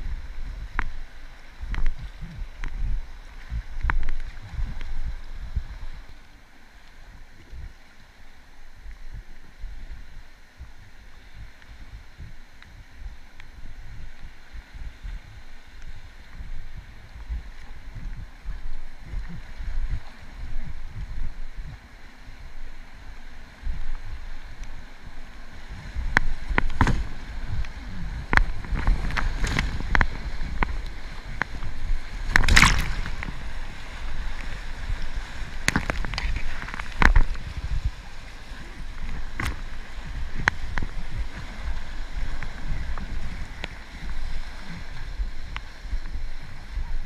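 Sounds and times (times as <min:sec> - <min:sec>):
river water rushing around kayak: 0:00.0 - 0:47.0
wind rumble on microphone: 0:00.0 - 0:47.0
sharp water splashes: 0:28.3 - 0:37.7.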